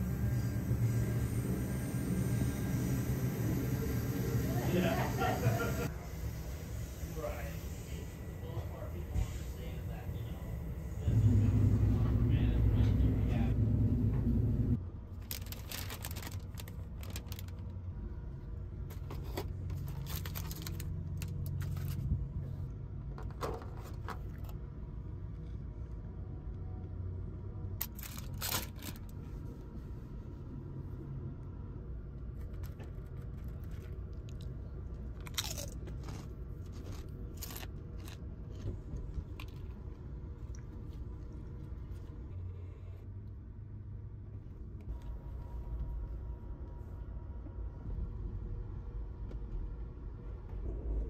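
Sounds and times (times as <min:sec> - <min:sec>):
train rumble: 0:07.2 - 0:22.6, 0:44.8 - 0:51.0
paper bag crinkling: 0:15.2 - 0:17.7, 0:19.7 - 0:22.1, 0:27.8 - 0:29.2.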